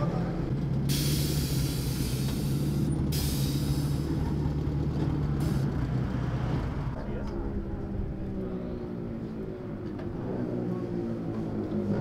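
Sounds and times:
air hissing from suspension: 0.9 - 4.2.

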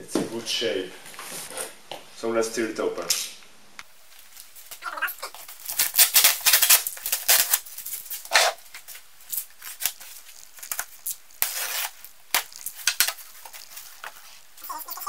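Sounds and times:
cardboard and plastic crinkling: 4.1 - 15.0
packing tape tearing: 4.2 - 15.0.

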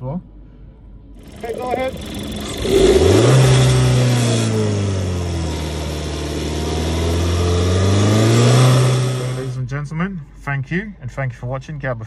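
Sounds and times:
car engine revving: 1.2 - 9.6.

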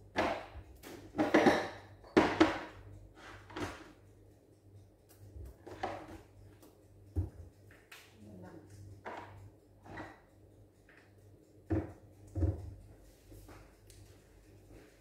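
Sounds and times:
kitchen utensils clattering in cabinet: 1.1 - 3.9.

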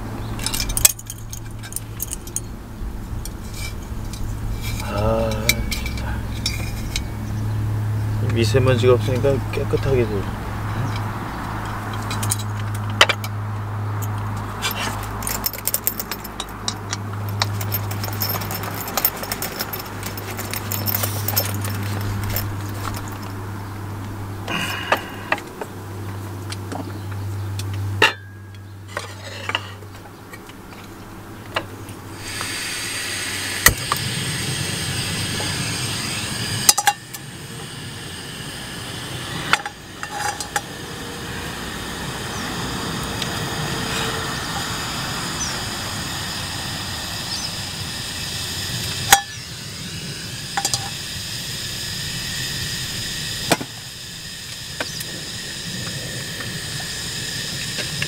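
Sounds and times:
gas stove burner hissing: 32.0 - 58.0.

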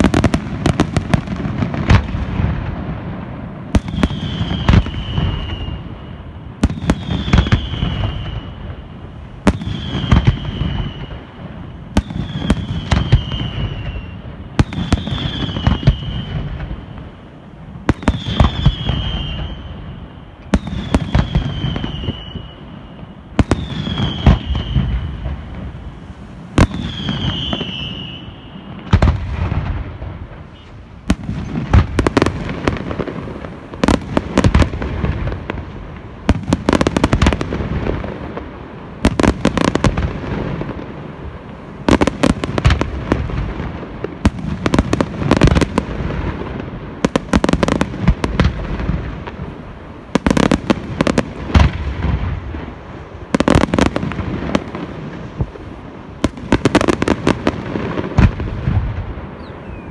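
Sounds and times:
fireworks bursting: 0.0 - 59.9
whistles falling in pitch: 3.8 - 8.8, 9.5 - 11.3, 12.0 - 14.2, 18.0 - 25.2, 26.8 - 28.8, 59.4 - 59.9.

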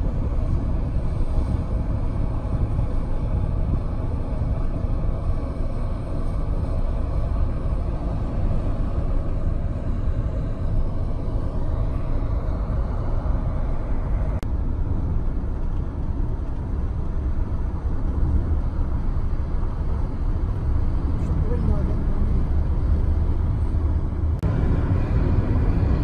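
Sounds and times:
car cabin road rumble: 0.0 - 26.0.

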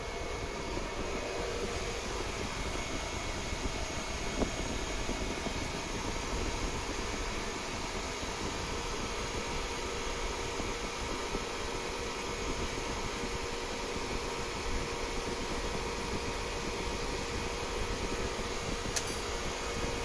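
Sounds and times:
fan whirring: 0.0 - 20.0
sharp click: 18.9 - 19.3.

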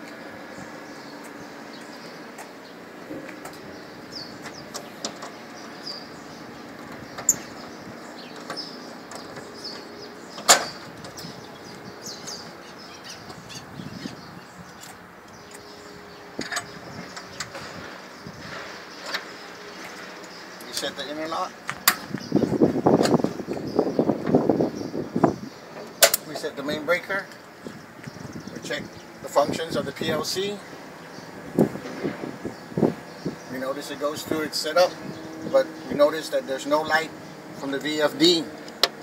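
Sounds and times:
outdoor background noise: 0.0 - 39.0
metal latch clicks: 25.8 - 26.4.

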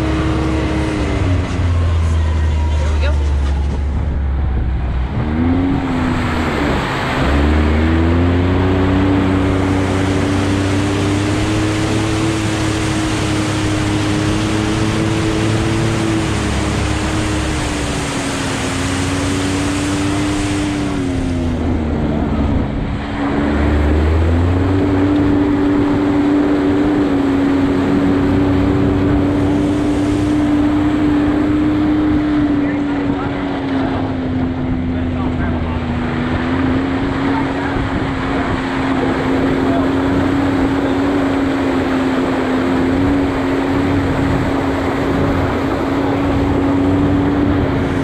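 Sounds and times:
off-road vehicle engine cruising: 0.0 - 48.0
rushing hiss of muddy water: 9.2 - 21.4, 27.9 - 32.3.

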